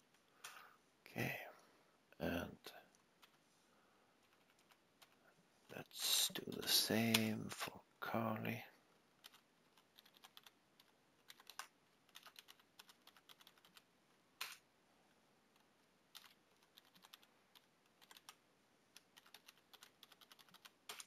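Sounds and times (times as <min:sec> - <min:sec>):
keyboard typing: 0:03.2 - 0:03.4, 0:04.2 - 0:05.2, 0:09.2 - 0:14.6, 0:15.5 - 0:21.0.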